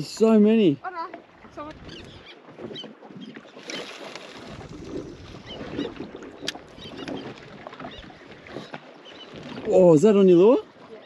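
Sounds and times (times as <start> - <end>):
water lapping against boat hull: 0.0 - 11.0
wind on microphone: 1.4 - 9.9.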